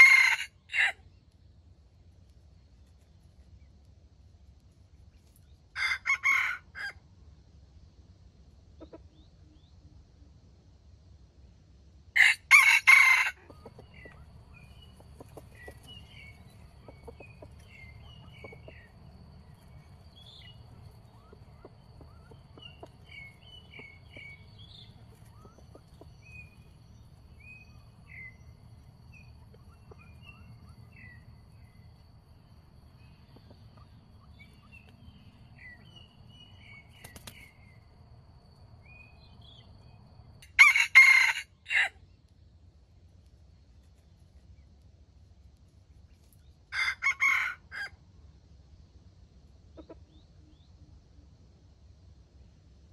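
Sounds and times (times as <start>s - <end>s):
rooster crowing: 0.0s - 1.0s, 5.8s - 7.0s, 12.2s - 14.1s, 40.5s - 42.0s, 46.7s - 48.0s.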